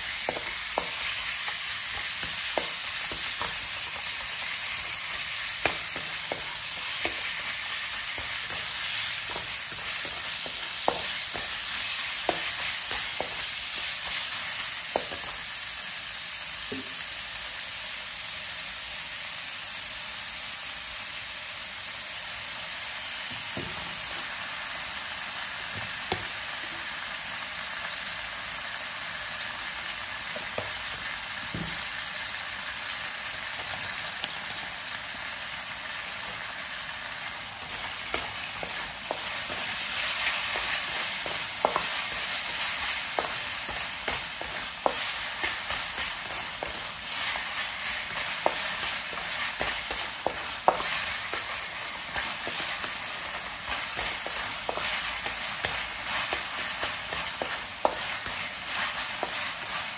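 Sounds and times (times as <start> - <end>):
meat sizzling in a wok: 0.0 - 59.9
wooden spatula knocking pan: 0.2 - 15.4, 37.6 - 59.9
spatula scraping meat: 37.6 - 59.9.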